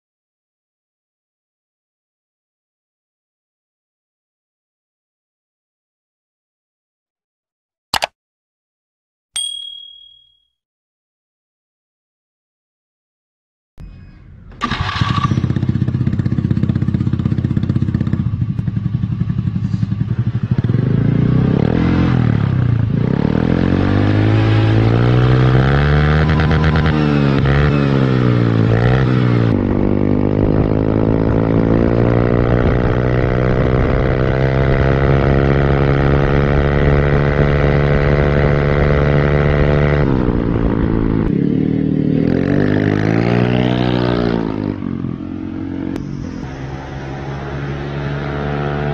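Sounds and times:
scooter engine revving: 0:14.6 - 0:32.6.

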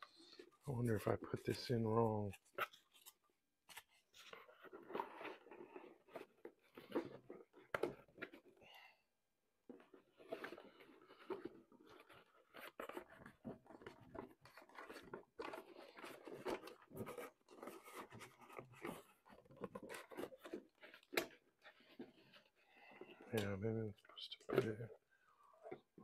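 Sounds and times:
rustling and scraping in cardboard box: 0:02.4 - 0:08.6, 0:09.7 - 0:23.3.

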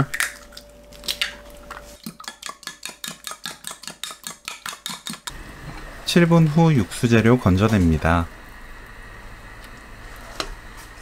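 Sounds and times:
utensil beating eggs in glass: 0:02.0 - 0:05.3.

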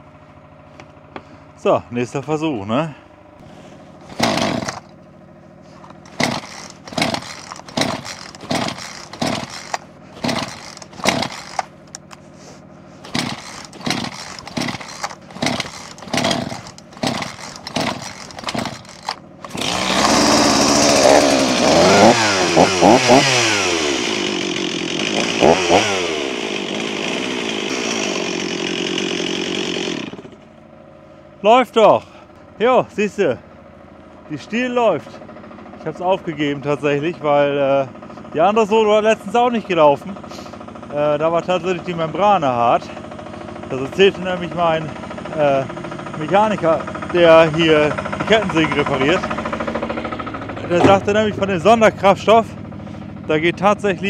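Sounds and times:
chainsaw engine revving and running: 0:03.4 - 0:05.0, 0:05.6 - 0:30.5, 0:38.3 - 0:54.0
chainsaw starter cord pulls: 0:03.4 - 0:30.5, 0:42.4 - 0:52.3.

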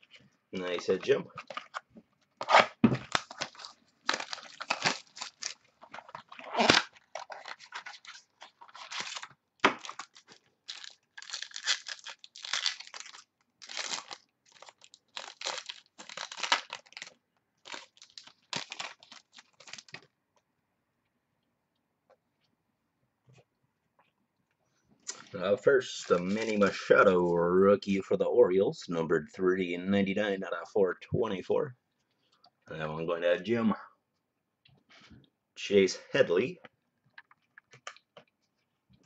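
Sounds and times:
wrapper tearing and crinkling: 0:02.4 - 0:20.0, 0:25.9 - 0:26.8.

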